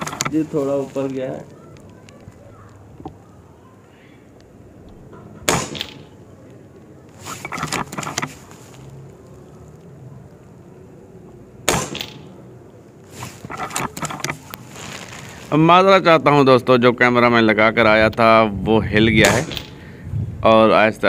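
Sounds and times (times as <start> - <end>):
air rifle shot crack: 5.4 - 6.2, 11.7 - 12.3, 19.2 - 19.8.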